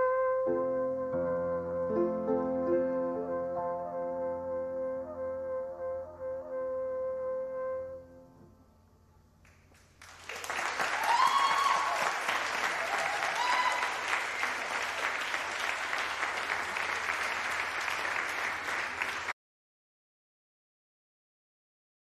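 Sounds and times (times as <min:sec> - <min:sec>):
audience applauding: 0:09.5 - 0:19.4
short cheers: 0:10.3 - 0:18.0.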